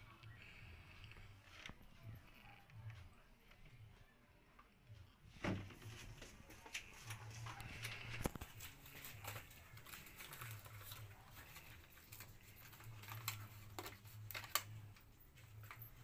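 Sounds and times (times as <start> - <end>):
plastic packaging crinkling: 6.7 - 16.0.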